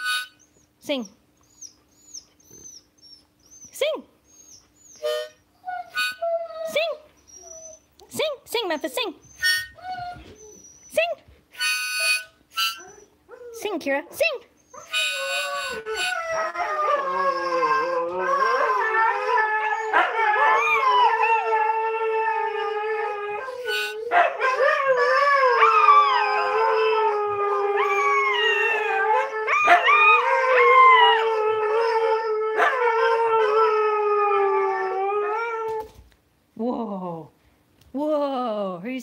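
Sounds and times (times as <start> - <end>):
dogs howling together: 14.9 - 35.8.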